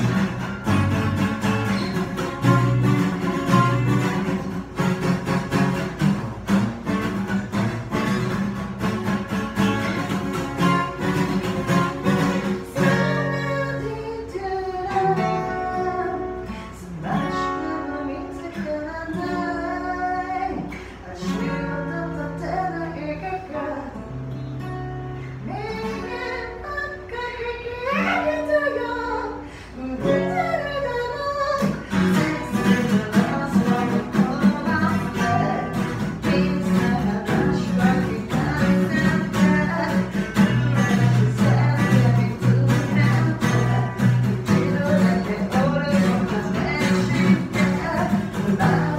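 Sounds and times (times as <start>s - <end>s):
bass guitar: 0.0s - 14.1s, 31.6s - 48.9s
acoustic guitar: 0.0s - 48.9s
woman singing: 9.9s - 24.3s, 25.2s - 48.9s.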